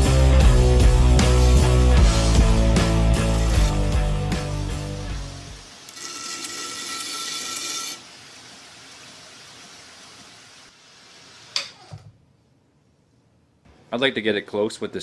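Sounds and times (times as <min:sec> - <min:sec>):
belt grinder grinding: 0:02.5 - 0:04.1, 0:05.6 - 0:08.2.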